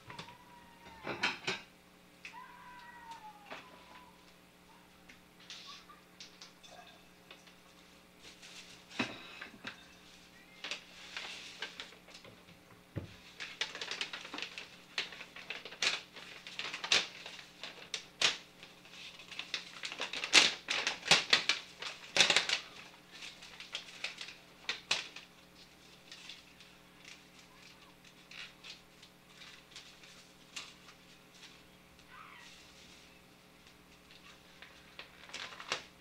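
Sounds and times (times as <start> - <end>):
paper and plastic bags rustling: 7.7 - 9.2, 10.0 - 36.0.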